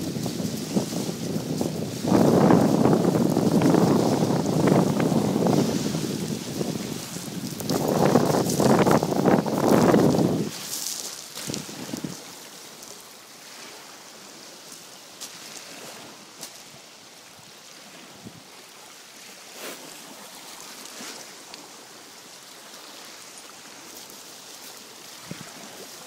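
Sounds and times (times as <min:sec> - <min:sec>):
small waves on pebble beach: 0:00.0 - 0:26.0
footsteps crunching pebbles: 0:00.2 - 0:13.0.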